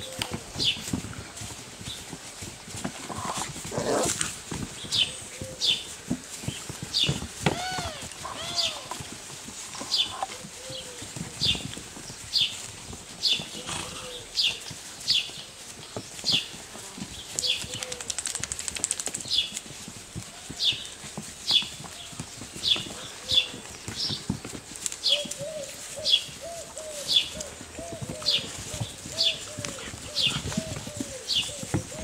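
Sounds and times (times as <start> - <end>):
puppies playing on mats: 0.0 - 32.0
bird chirping: 7.0 - 9.0.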